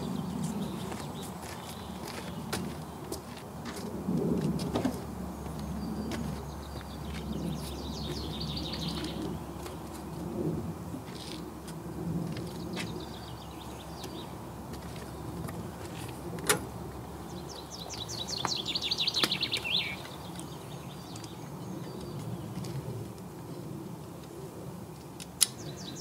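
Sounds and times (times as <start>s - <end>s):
songbird chirping and trilling: 0.0s - 3.3s, 5.4s - 10.2s, 17.1s - 22.7s, 25.4s - 26.0s.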